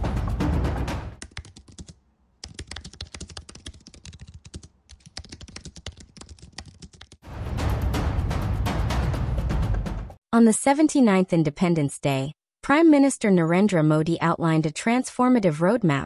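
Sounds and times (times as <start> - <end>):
loud music: 0.0 - 1.2, 7.3 - 10.2
typing on computer keyboard: 1.2 - 7.2.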